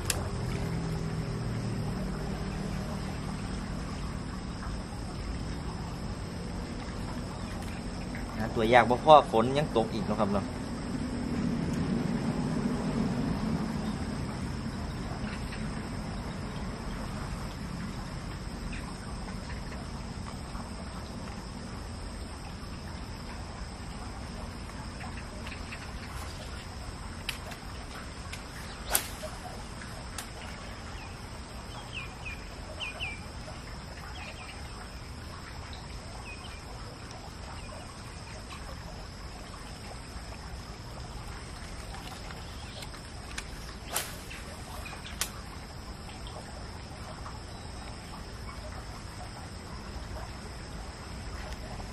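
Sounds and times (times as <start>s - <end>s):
insects droning: 0.0s - 51.9s
bird chirps: 30.4s - 33.2s.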